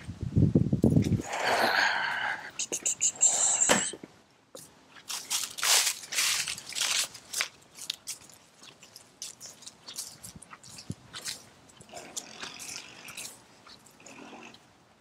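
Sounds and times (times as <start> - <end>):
footsteps crunching dry leaves: 4.9 - 13.9.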